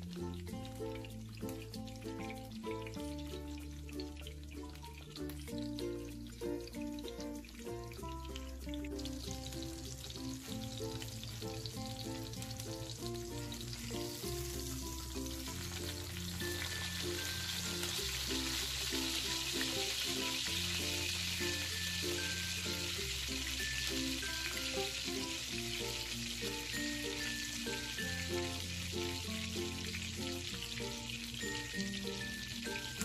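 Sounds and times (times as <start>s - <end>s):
background music: 0.0s - 33.0s
pork chop sizzling in hot oil: 0.0s - 33.0s.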